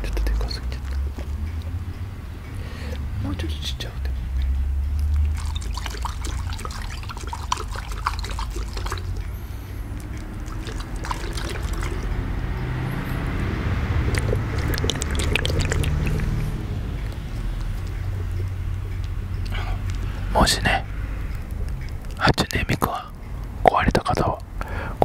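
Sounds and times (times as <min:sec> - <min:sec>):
rubber ball squelching in hands: 0:05.0 - 0:20.4.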